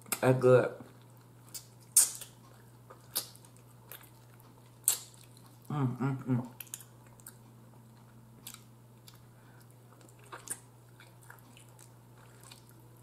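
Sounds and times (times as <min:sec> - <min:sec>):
person chewing with wet smacks: 0:00.0 - 0:05.7, 0:06.3 - 0:13.0.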